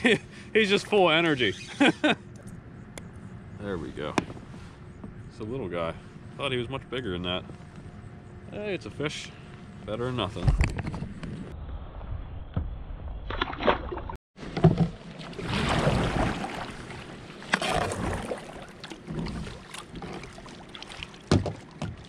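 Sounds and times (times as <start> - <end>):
water lapping around a kayak: 14.4 - 22.0.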